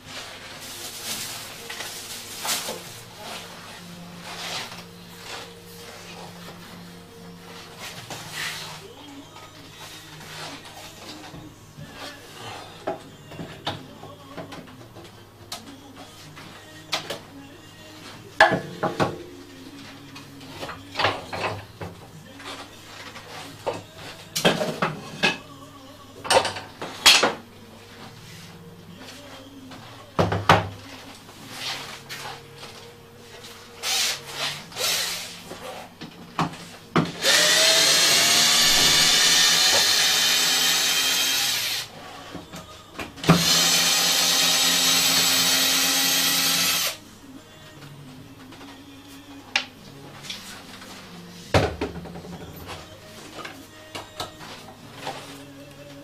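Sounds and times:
cordless drill drilling into wood: 37.2s - 41.9s, 43.4s - 47.0s.

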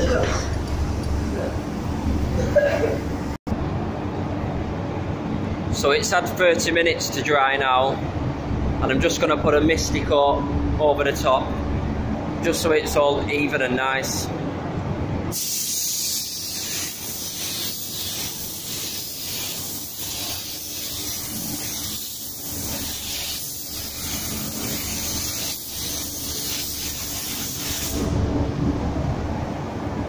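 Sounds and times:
spray gun hissing: 15.3s - 28.1s.

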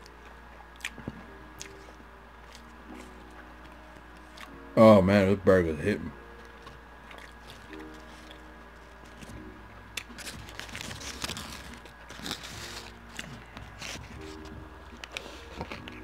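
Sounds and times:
close chewing mouth sounds: 0.0s - 3.1s, 7.0s - 8.4s, 12.3s - 16.0s
paper wrapper crinkling: 10.0s - 16.0s.

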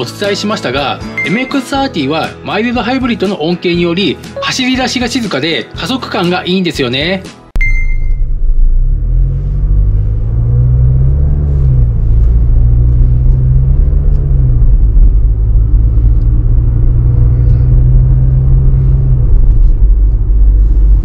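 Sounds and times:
car engine hum from inside: 7.9s - 21.0s.

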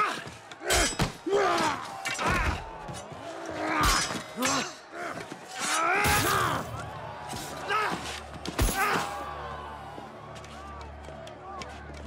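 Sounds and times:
people shouting and grunting: 0.0s - 10.3s
weapon blows and clashes: 3.7s - 4.8s, 5.4s - 9.2s.

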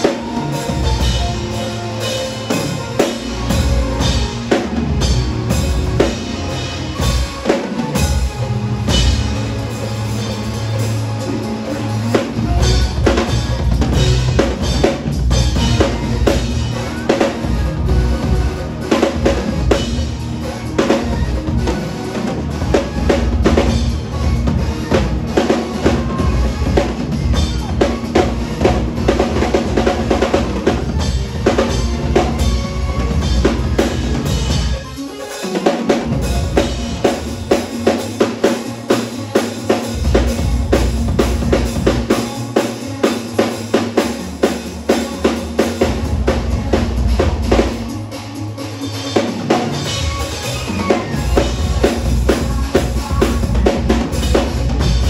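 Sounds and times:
drum kit played fast: 0.0s - 55.0s.

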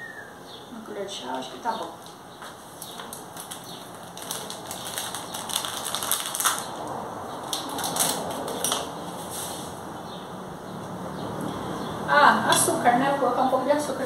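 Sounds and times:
plastic sachet crinkling: 2.8s - 8.9s.

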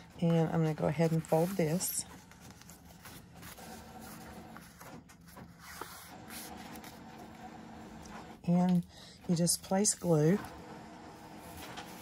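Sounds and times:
cardstock rustling and creasing: 0.0s - 8.1s, 11.3s - 12.0s
printer humming: 0.0s - 8.5s, 9.2s - 12.0s.

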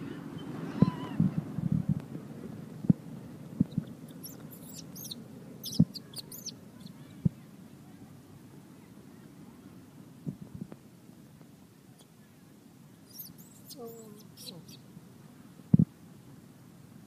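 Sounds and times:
baby monkey squealing: 3.8s - 7.0s, 13.1s - 14.8s.

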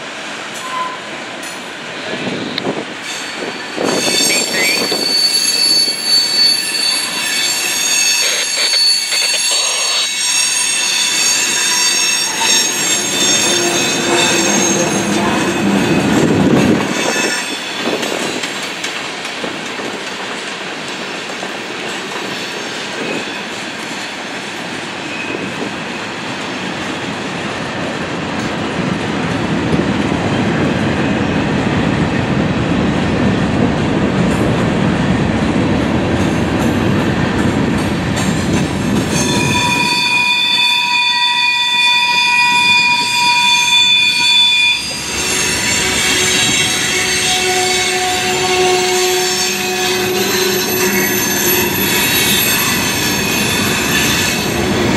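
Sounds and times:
freight train rolling past: 0.0s - 54.9s
high-pitched wheel squeal: 0.6s - 1.1s, 3.0s - 18.0s, 39.1s - 54.6s.

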